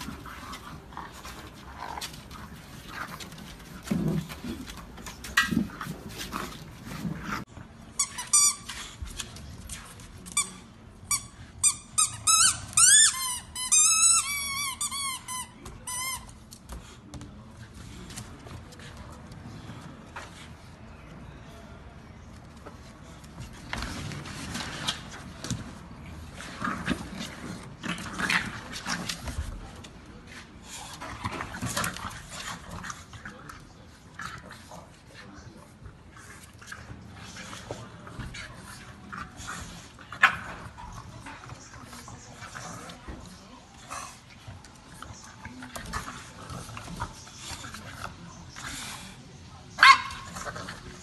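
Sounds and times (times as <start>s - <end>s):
dogs playing noises: 0.0s - 51.0s
squeaky toy squeaking: 11.2s - 16.2s.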